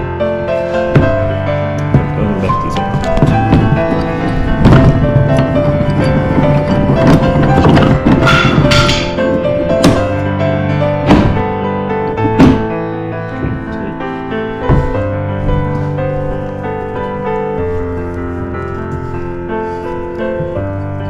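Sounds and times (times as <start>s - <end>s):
piano music with held notes: 0.0s - 21.0s
sharp knocks: 0.9s - 10.3s, 11.0s - 12.8s.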